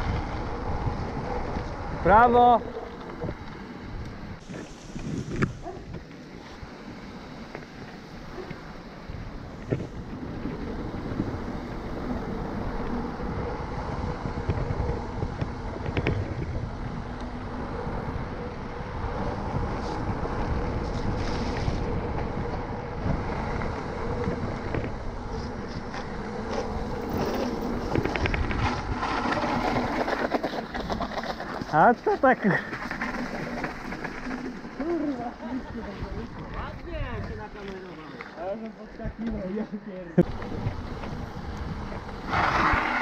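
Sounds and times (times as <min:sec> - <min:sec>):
wind on microphone: 0:00.0 - 0:06.8, 0:07.8 - 0:30.1, 0:40.2 - 0:43.0
bike tyres rumbling on concrete: 0:00.0 - 0:43.0
bike clicks and rattles: 0:09.5 - 0:18.8, 0:19.6 - 0:43.0.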